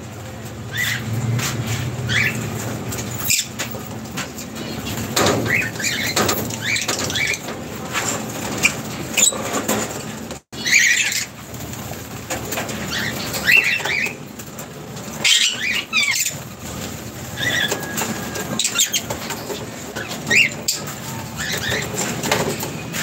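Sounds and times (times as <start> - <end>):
wings flapping: 0.0 - 23.0
lovebirds chirping: 10.6 - 11.4, 15.0 - 22.5.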